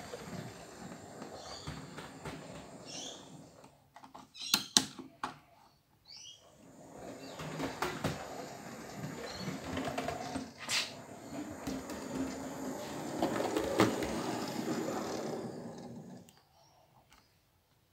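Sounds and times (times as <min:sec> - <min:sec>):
model train rolling rumble: 0:00.0 - 0:03.6, 0:06.6 - 0:16.3.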